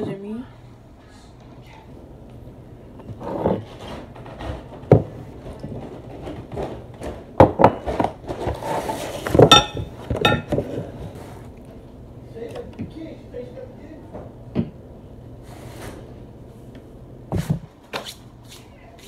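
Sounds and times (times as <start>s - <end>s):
glass and plastic kitchenware clinking: 9.4s - 10.6s.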